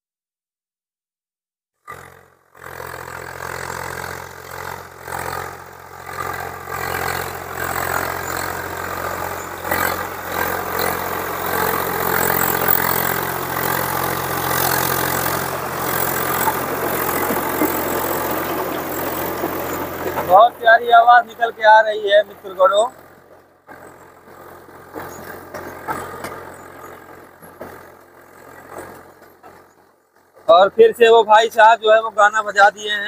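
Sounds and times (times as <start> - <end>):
tractor diesel engine running: 1.9 - 33.0
rotavator churning wet soil: 6.2 - 20.5.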